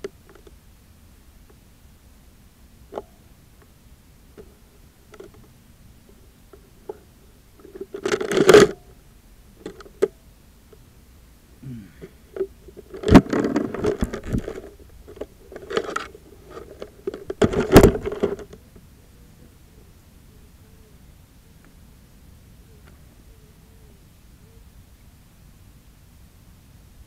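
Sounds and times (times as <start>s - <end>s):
camera handling rubbing and scraping: 12.8s - 18.5s.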